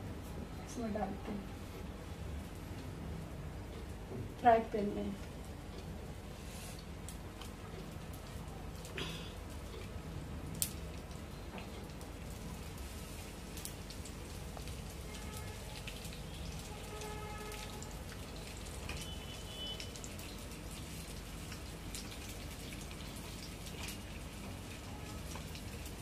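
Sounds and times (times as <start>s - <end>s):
fish sizzling in hot oil: 10.5s - 26.0s.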